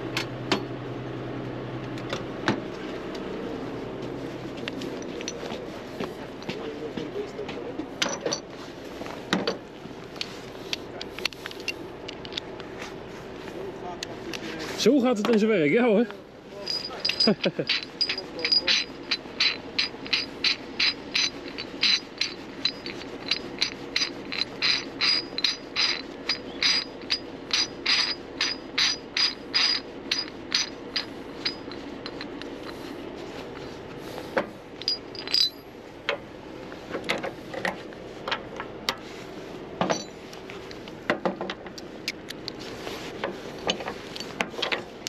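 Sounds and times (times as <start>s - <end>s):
steady low hum: 0.0s - 45.0s
metal tool clinks: 16.6s - 32.4s, 34.8s - 35.7s, 39.9s - 40.2s
ratchet tool clicking: 16.7s - 32.8s.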